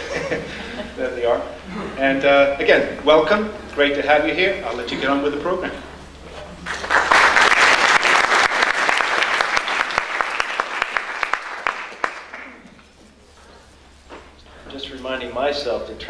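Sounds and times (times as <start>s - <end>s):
audience applauding: 6.6s - 12.8s.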